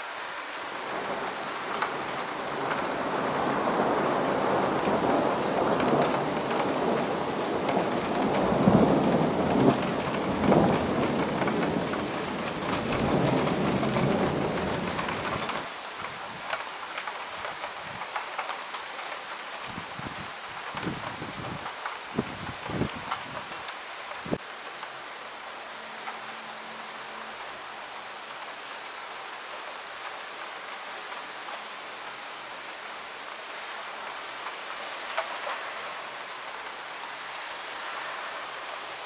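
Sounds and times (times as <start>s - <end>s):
steady rain: 0.0s - 39.0s
thunder rolling: 0.9s - 15.7s.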